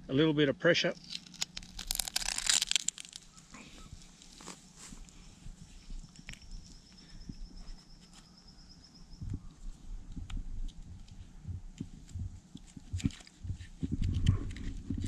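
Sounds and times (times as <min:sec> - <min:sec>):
rustling and handling thumps: 0:01.0 - 0:06.7, 0:09.7 - 0:15.0.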